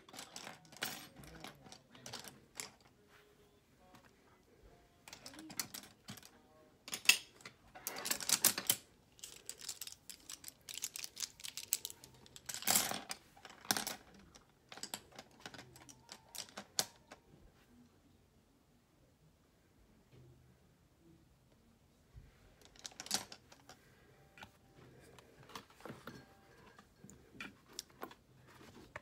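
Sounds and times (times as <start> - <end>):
small objects handled clicking: 8.1 - 12.9.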